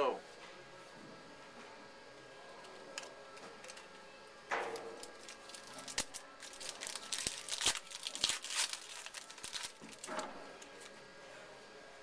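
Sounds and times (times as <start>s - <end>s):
wrapper tearing and crinkling: 4.9s - 10.9s.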